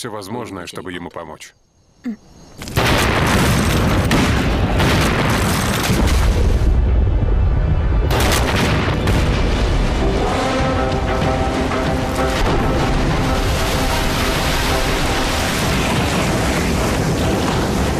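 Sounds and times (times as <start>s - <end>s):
explosion boom: 2.8s - 10.4s
dramatic music: 6.2s - 17.9s.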